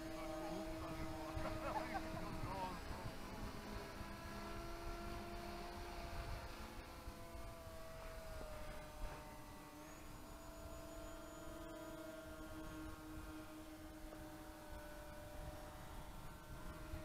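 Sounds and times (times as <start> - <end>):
model airplane motors droning: 0.0 - 17.0.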